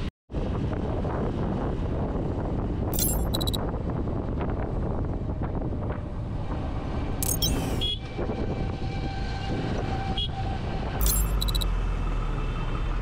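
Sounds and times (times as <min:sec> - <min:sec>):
motorcycle engine and road noise: 0:00.0 - 0:13.0
wind rushing over microphone: 0:00.3 - 0:11.0
brief high-pitched sound: 0:11.0 - 0:11.6.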